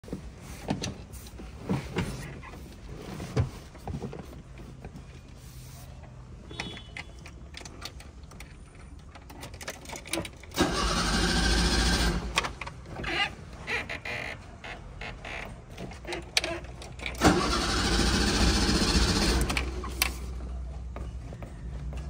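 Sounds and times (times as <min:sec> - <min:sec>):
starter motor cranking engine: 0:10.3 - 0:13.3, 0:16.4 - 0:20.3.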